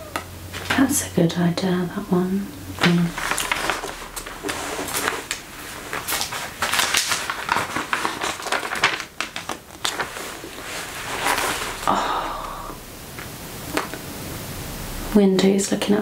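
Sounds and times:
magazine pages rustling: 0:02.8 - 0:12.0.

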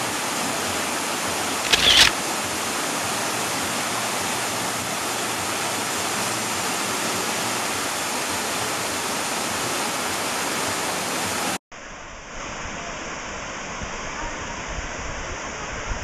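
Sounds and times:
waterfall rushing and splashing: 0:00.1 - 0:11.6.

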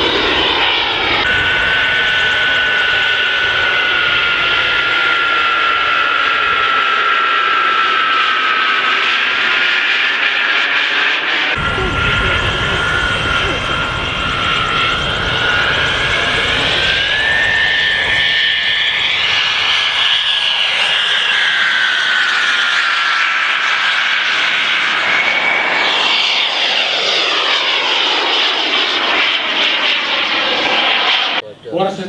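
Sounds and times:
model jet turbine whine: 0:00.0 - 0:32.0
rushing noise: 0:11.6 - 0:19.1.

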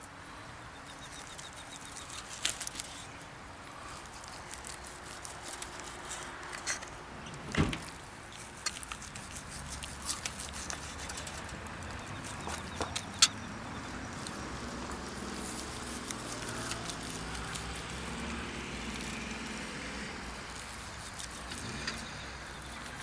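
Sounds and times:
distant vehicle passing: 0:09.3 - 0:23.0.

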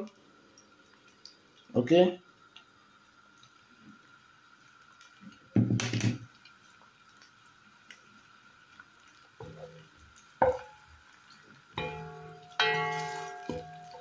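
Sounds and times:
spatula knocking and scraping a pot: 0:10.4 - 0:10.8, 0:11.8 - 0:14.0.

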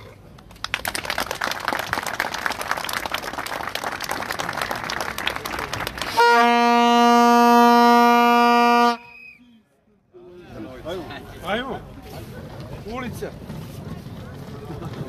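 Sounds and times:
crowd clapping: 0:00.3 - 0:07.0
horn long steady note: 0:06.0 - 0:09.2.

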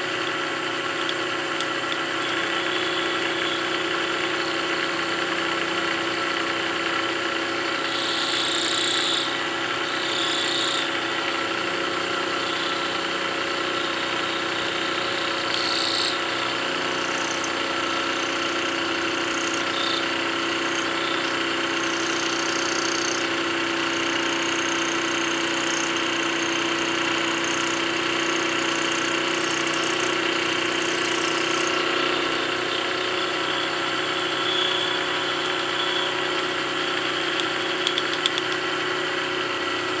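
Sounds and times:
milling machine hum: 0:00.0 - 0:40.0
high-pitched metal cutting noise: 0:07.7 - 0:37.9.

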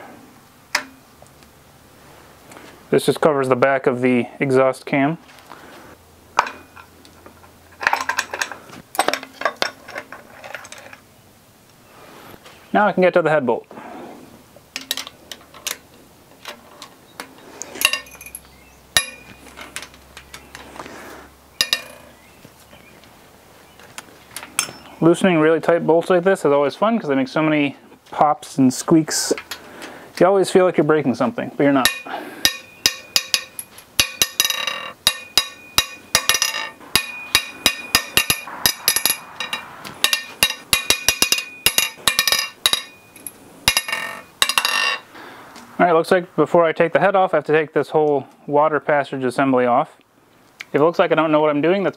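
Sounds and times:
wrench breaking bolts loose: 0:00.7 - 0:01.0, 0:07.8 - 0:11.0, 0:14.8 - 0:20.7, 0:21.6 - 0:22.1, 0:31.8 - 0:45.1
sharp metallic pops and clinks: 0:00.7 - 0:01.1, 0:17.2 - 0:20.7, 0:21.6 - 0:22.2, 0:24.4 - 0:25.0, 0:31.8 - 0:45.1.

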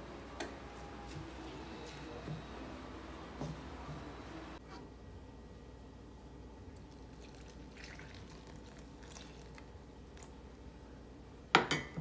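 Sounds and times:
liquid pouring onto flour: 0:06.8 - 0:10.4.

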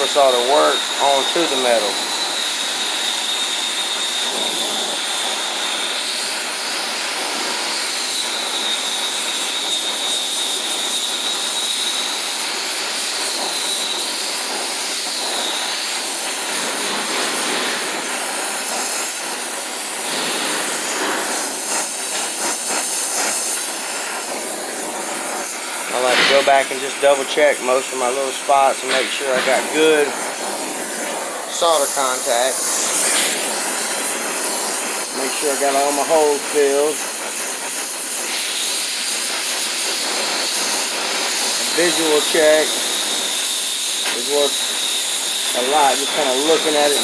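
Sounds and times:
thin high whistle: 0:00.0 - 0:06.7, 0:07.7 - 0:12.3, 0:25.6 - 0:29.9, 0:41.7 - 0:47.0
torch flame hissing: 0:00.0 - 0:47.0.

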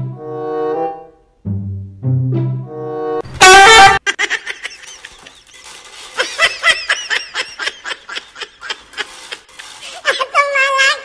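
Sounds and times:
person laughing hard: 0:04.0 - 0:05.5, 0:06.2 - 0:10.4.

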